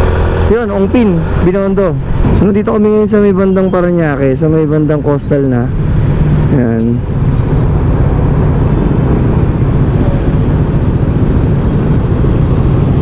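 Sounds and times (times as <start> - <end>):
motorcycle engine running: 0.0 - 13.0
wind rushing over microphone: 1.2 - 3.3, 5.6 - 13.0.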